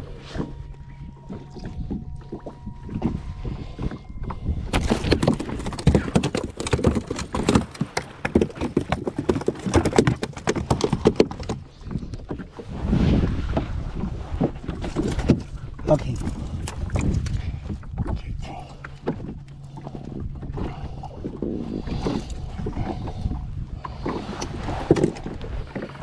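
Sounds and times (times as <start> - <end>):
low steady hum: 0.0 - 26.0
knocks and clatter on fibreglass deck: 4.7 - 12.4.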